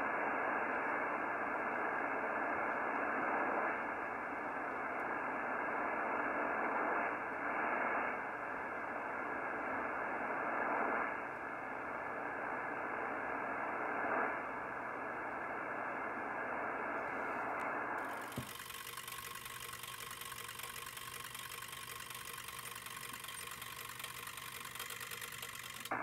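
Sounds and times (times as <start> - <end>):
radio static and hiss: 0.0 - 19.2.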